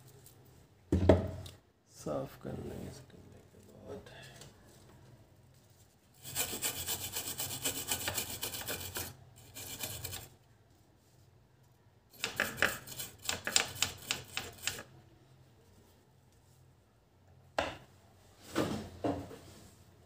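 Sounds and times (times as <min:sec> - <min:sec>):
brush scrubbing circuit board: 0:06.2 - 0:10.3, 0:12.2 - 0:14.9.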